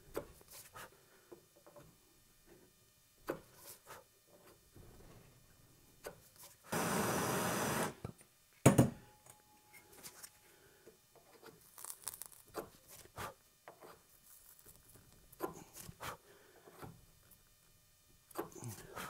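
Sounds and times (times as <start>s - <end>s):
steady hiss: 6.4s - 8.0s.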